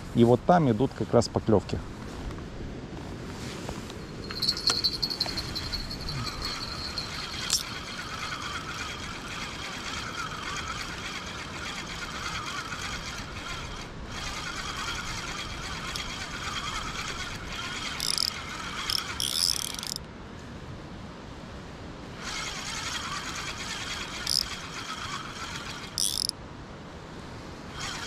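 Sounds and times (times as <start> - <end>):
fishing reel whirring: 4.2 - 20.0, 22.2 - 26.4, 27.7 - 28.0.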